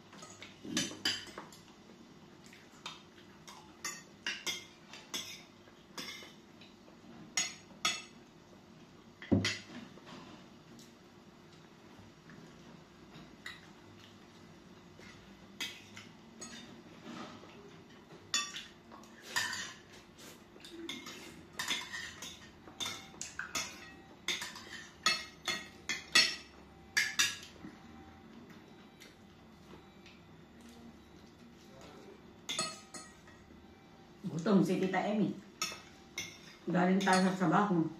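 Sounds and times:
cutlery clinking on glass plates: 0.1s - 1.6s, 2.8s - 6.4s, 7.3s - 8.2s, 9.3s - 9.9s, 15.0s - 16.8s, 17.4s - 20.0s, 20.6s - 27.6s, 32.4s - 33.5s, 35.6s - 37.4s.

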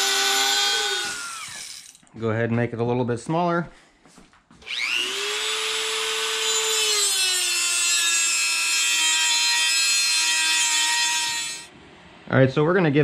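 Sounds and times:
rotary tool grinding steel: 0.0s - 2.0s, 4.6s - 11.7s.

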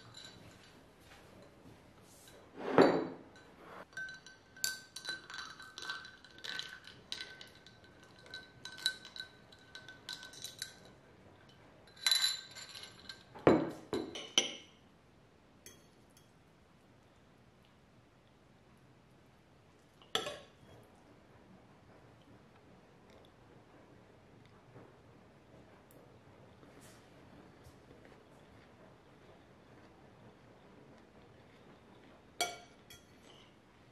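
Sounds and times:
spoon clinking in glass: 0.0s - 0.8s, 2.9s - 10.9s, 11.9s - 14.7s, 15.6s - 16.4s, 32.4s - 33.4s.

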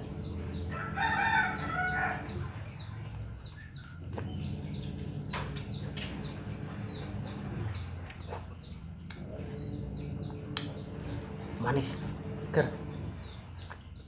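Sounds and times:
low hum: 0.0s - 14.0s
rooster crowing: 0.6s - 2.6s.

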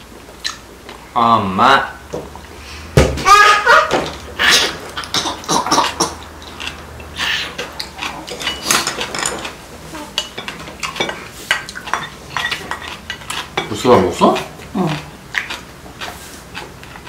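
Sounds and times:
utensils clinking on ceramic bowls: 4.0s - 14.4s
chewing: 4.6s - 17.0s.

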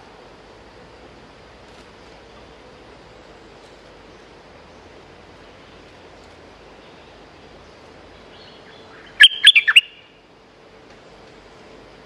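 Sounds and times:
bird bubbling notes: 9.1s - 10.0s.

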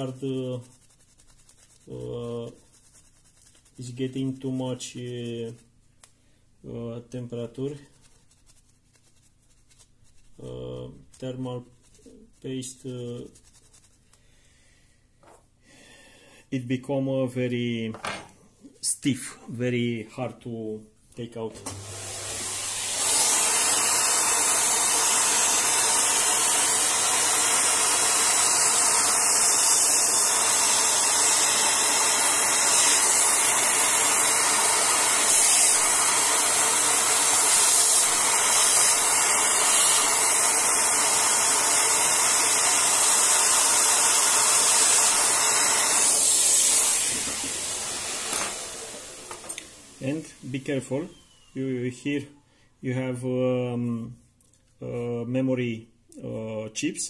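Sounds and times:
hair dryer blowing air: 21.5s - 51.5s.

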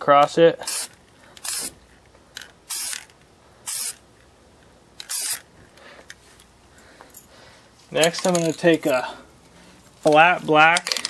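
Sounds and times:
aerosol spray can spraying: 0.6s - 1.8s, 2.7s - 3.0s, 3.7s - 4.0s, 5.1s - 5.4s.

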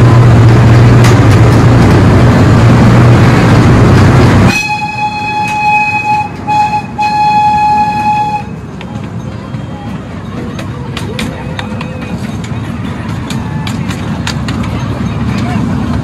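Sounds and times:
miniature train rumbling: 0.0s - 16.0s
train horn sounding: 4.5s - 8.6s.

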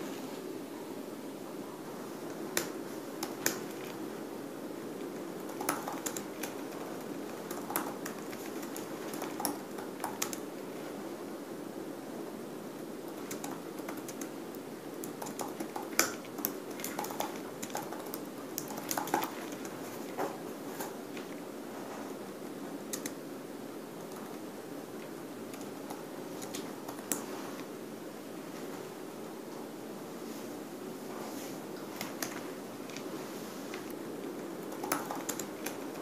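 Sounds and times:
steady background noise: 0.0s - 36.0s
laptop keyboard typing: 2.2s - 4.2s, 4.9s - 10.6s, 13.0s - 20.2s, 22.8s - 23.2s, 24.0s - 27.3s, 31.9s - 33.1s, 33.8s - 36.0s.

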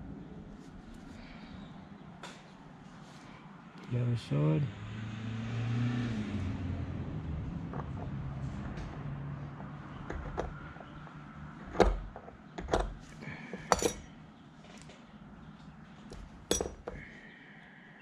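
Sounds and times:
metal hand tools clinking: 13.5s - 14.1s, 16.2s - 17.0s.

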